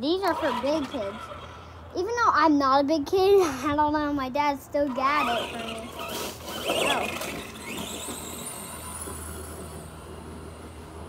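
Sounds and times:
toy truck motor whine: 0.3 - 1.8, 5.0 - 11.0.

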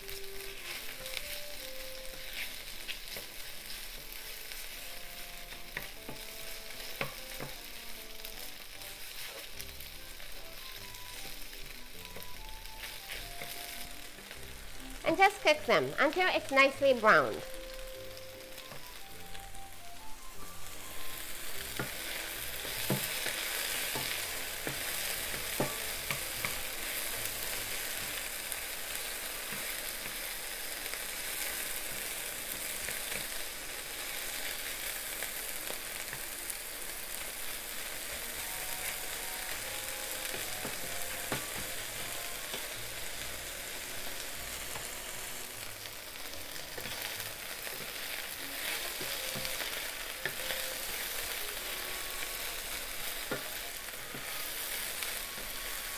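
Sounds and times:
chicken sizzling in a frying pan: 0.0 - 55.9
wooden spatula scraping a pan: 0.5 - 1.3, 2.1 - 7.6, 8.8 - 9.6, 46.5 - 55.9.

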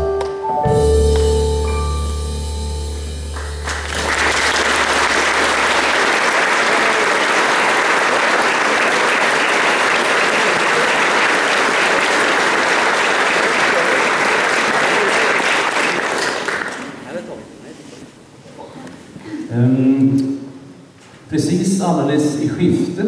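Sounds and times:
audience applauding: 3.4 - 17.0.

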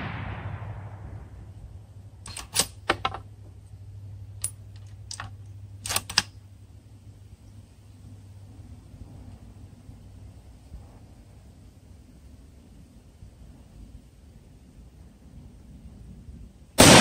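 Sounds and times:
rifle bolt metallic clicks: 2.2 - 3.2, 4.4 - 6.3.

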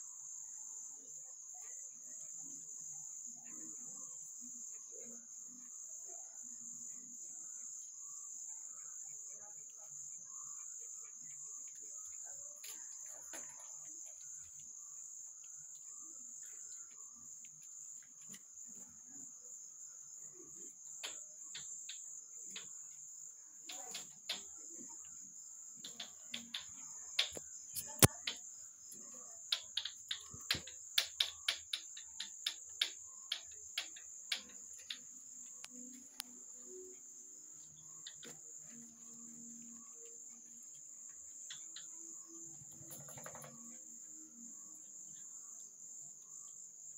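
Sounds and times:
crickets chirring: 0.0 - 46.9
sharp clicks and knocks: 23.7 - 24.6, 25.8 - 28.4, 29.5 - 35.0.

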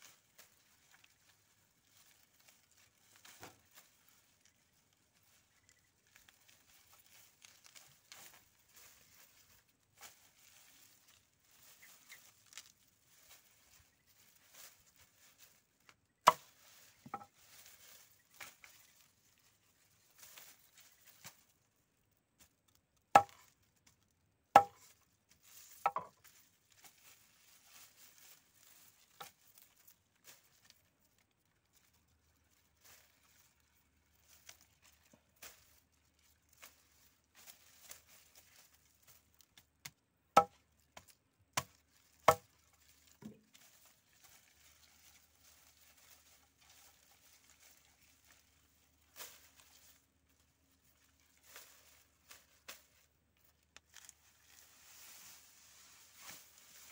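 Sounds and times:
stalks rustling: 0.0 - 56.9
machete chopping on wooden board: 23.2 - 23.4, 24.6 - 24.8.

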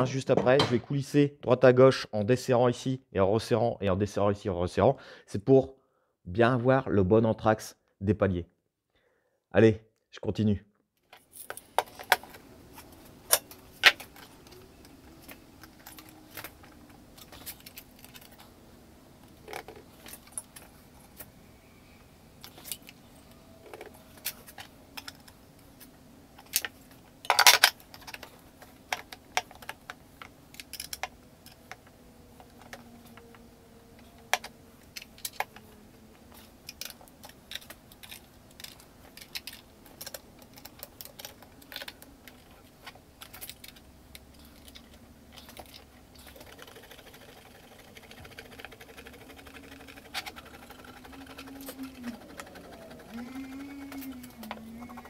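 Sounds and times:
metallic clicks and rattles: 26.4 - 33.2, 36.3 - 55.0.

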